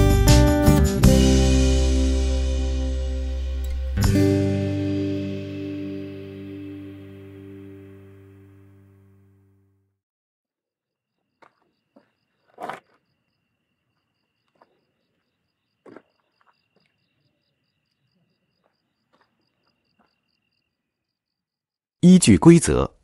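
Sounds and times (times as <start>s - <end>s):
insect pulsing chirp: 11.4s - 21.7s.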